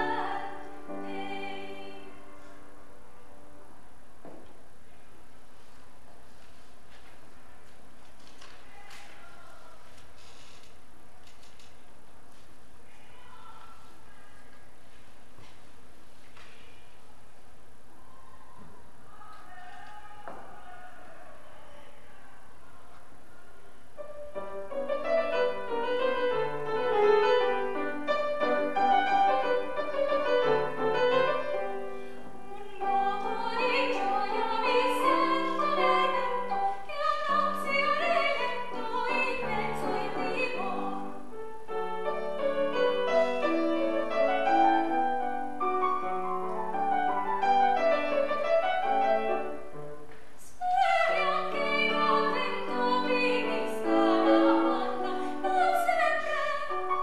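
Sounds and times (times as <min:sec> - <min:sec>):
soprano singing: 0:00.0 - 0:03.7, 0:24.0 - 0:57.0
grand piano accompaniment: 0:24.0 - 0:57.0.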